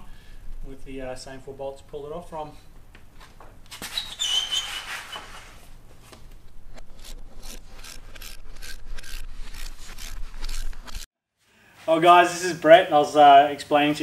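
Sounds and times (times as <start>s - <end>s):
brief squeal: 3.8s - 5.4s.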